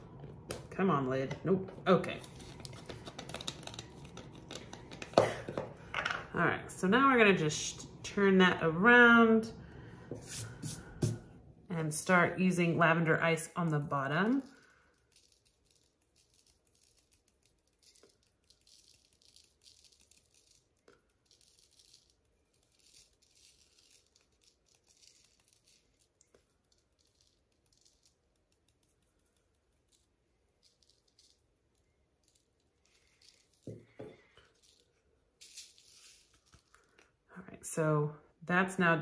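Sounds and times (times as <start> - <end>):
glitter shaker rattling: 32.2 - 36.9.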